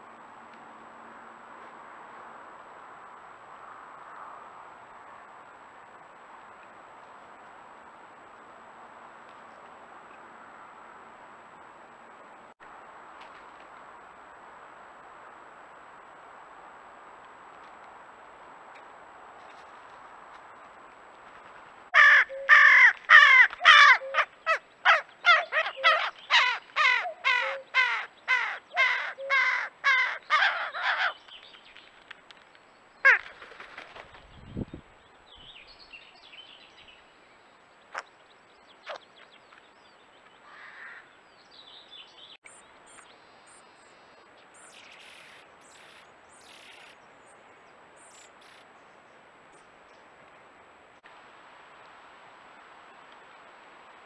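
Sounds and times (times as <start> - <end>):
crow cawing: 22.0 - 31.2, 40.4 - 41.1.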